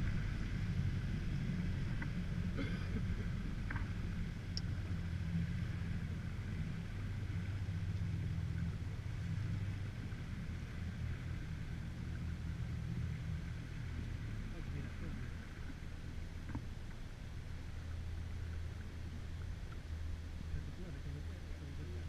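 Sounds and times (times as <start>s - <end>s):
boat motor humming: 0.0s - 22.0s
faint clicks: 4.5s - 4.7s, 19.4s - 19.9s.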